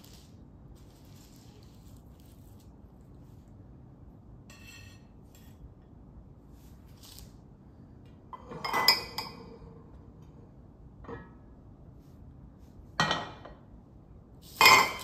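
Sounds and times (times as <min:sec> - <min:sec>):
glass clinking: 0:08.4 - 0:09.5, 0:14.6 - 0:15.0.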